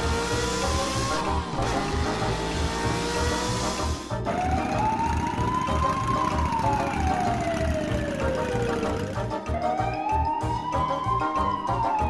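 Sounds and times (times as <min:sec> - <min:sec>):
background music with a beat: 0:00.0 - 0:12.0
police siren wailing: 0:04.2 - 0:12.0.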